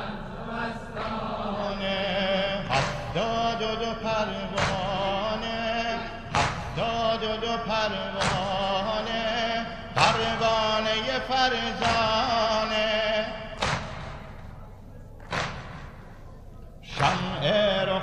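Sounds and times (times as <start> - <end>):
man singing mourning chant: 1.6 - 13.6, 16.8 - 18.0
sharp beat: 4.4 - 5.5, 6.2 - 17.5.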